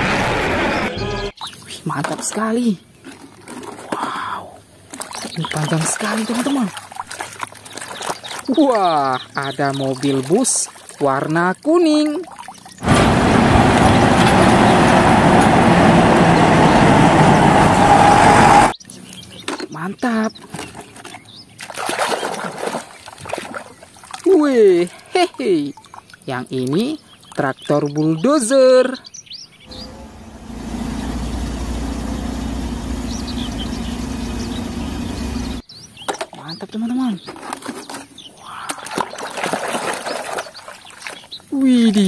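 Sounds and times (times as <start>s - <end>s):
bulldozer diesel engine running: 12.8s - 18.7s, 29.7s - 35.6s
coach bus driving past: 12.8s - 18.7s, 29.7s - 35.6s.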